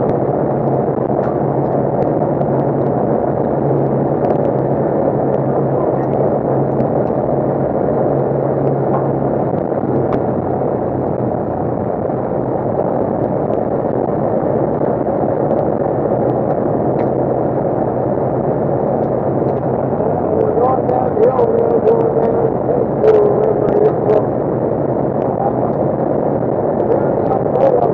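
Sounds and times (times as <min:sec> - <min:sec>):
low engine hum: 0:00.0 - 0:27.9.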